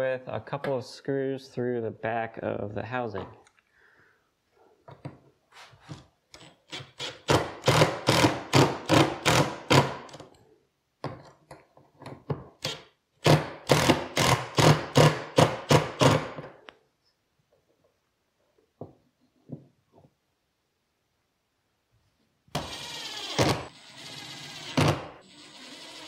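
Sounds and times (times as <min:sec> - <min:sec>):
impact driver hammering screws: 0:06.4 - 0:10.3, 0:12.6 - 0:16.5, 0:22.5 - 0:26.0.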